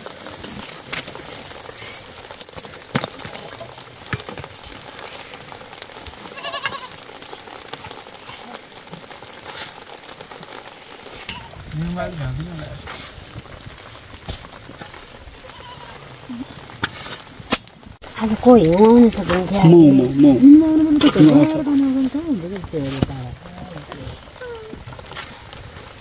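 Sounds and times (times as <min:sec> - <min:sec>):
hands kneading wet dough: 0:18.1 - 0:26.0.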